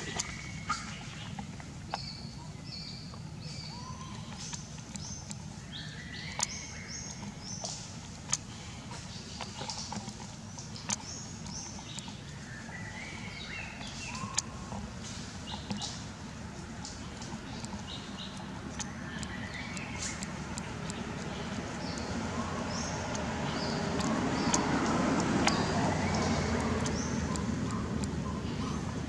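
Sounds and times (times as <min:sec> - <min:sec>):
birds chirping: 0:00.0 - 0:29.0
steady low hum: 0:00.0 - 0:29.0
sharp clicks: 0:06.3 - 0:08.5, 0:16.9 - 0:28.2.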